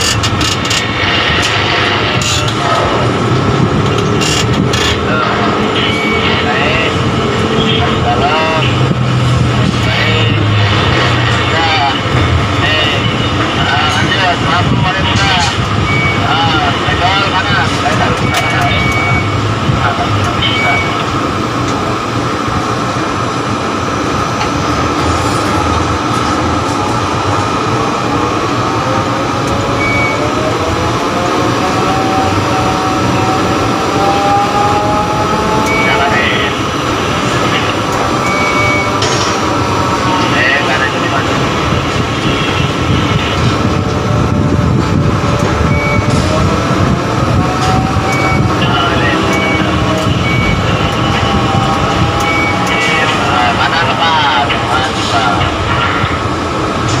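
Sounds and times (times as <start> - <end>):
crane machinery droning: 0.0 - 57.0
short high beeps: 38.2 - 39.0.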